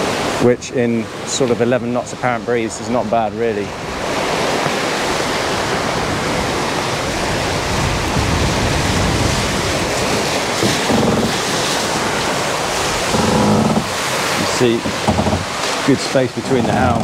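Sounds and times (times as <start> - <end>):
water rushing past boat hull: 0.0 - 17.0
wind on microphone: 4.0 - 17.0.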